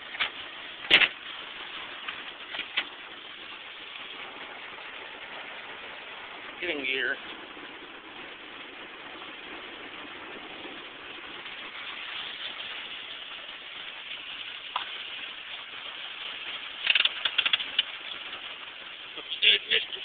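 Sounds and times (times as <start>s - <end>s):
heavy rain on vehicle roof: 0.0s - 20.0s
clicks and rattles: 0.1s - 1.2s, 16.8s - 18.2s.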